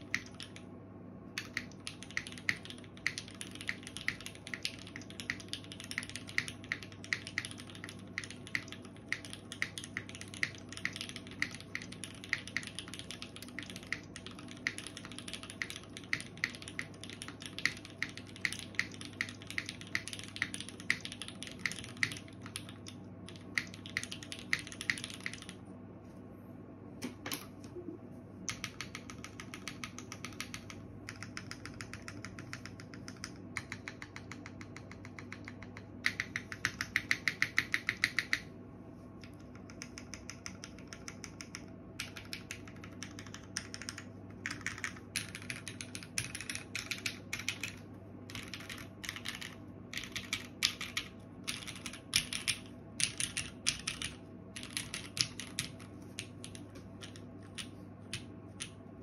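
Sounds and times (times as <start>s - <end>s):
mechanical keyboard typing: 0.0s - 0.7s, 1.4s - 25.6s, 28.5s - 38.5s, 39.2s - 58.8s.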